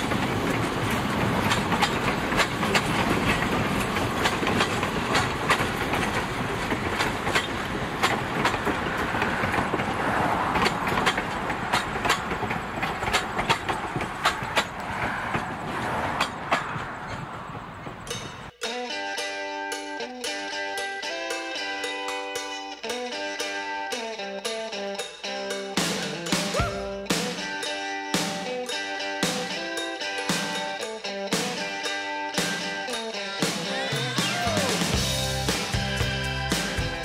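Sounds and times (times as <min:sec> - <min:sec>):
train wheels rumbling on rail: 0:00.0 - 0:18.6
wheels clicking over rail joints: 0:00.0 - 0:18.8.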